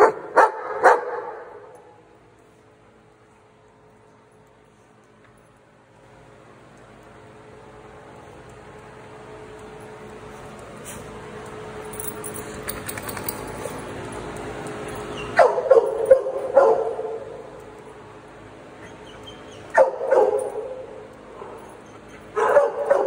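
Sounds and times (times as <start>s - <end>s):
dog barking: 0.0s - 1.6s, 15.4s - 17.3s, 19.7s - 20.9s, 22.4s - 23.0s.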